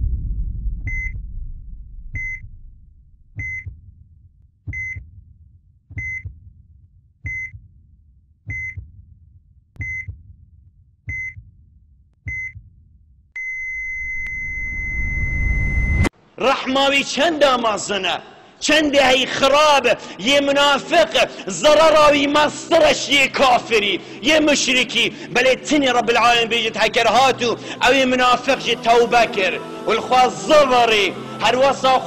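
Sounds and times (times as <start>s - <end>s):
flatline tone: 0.0s - 3.6s, 13.4s - 16.1s
deep heartbeat thump: 0.0s - 5.3s, 5.9s - 6.6s, 7.2s - 7.7s, 8.4s - 9.1s, 9.8s - 10.4s, 12.2s - 12.8s
heart monitor beep: 0.8s - 1.2s, 2.1s - 2.5s, 3.4s - 3.8s, 4.7s - 5.1s, 5.9s - 6.4s, 7.2s - 7.6s, 8.5s - 8.9s, 9.8s - 10.2s, 11.1s - 11.4s, 12.2s - 12.7s, 13.4s - 16.0s.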